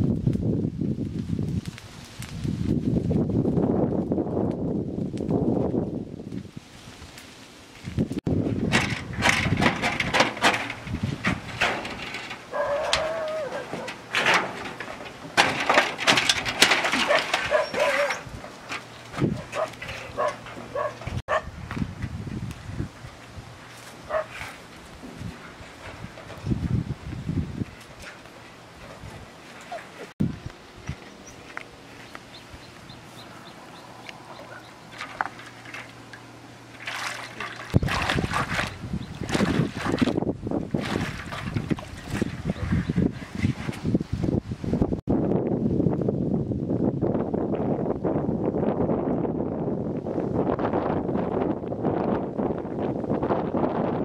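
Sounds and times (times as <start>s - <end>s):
water splashing and sloshing: 6.7s - 22.1s, 22.8s - 44.5s
metal roofing sheets clattering: 8.5s - 21.2s.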